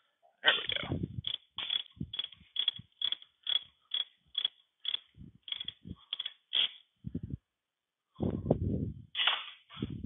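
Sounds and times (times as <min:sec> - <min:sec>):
ratchet wrench clicking: 0:01.2 - 0:06.8.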